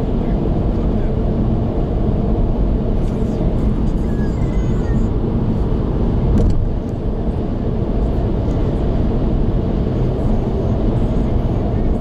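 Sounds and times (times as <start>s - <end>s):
car interior road and wind rumble: 0.0s - 12.0s.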